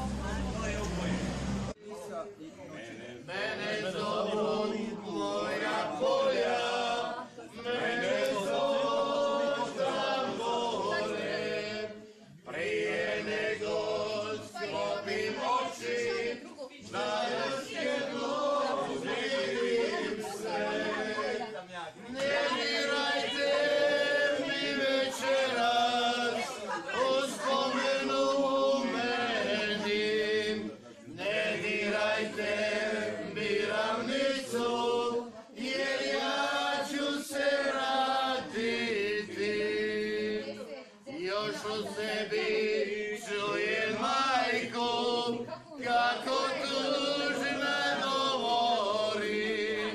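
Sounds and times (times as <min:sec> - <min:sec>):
group singing slow chant: 0:03.2 - 0:49.9.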